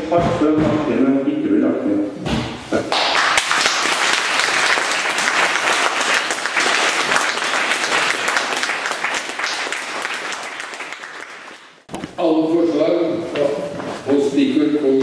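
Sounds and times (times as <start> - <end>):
audience applauding: 2.9 - 11.8.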